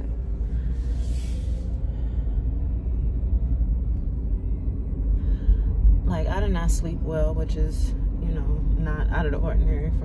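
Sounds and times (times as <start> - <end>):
car cabin road noise: 0.0 - 10.0
short hiss: 0.9 - 1.7.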